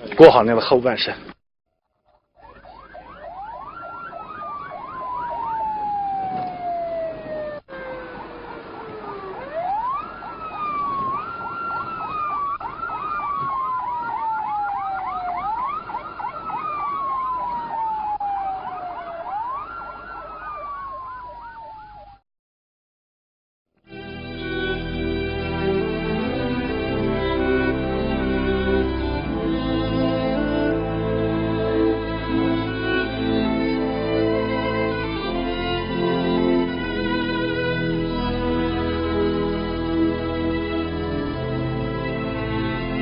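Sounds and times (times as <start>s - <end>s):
siren fast warble: 2.4s - 22.2s
siren wailing: 2.4s - 22.2s, 24.6s - 43.0s.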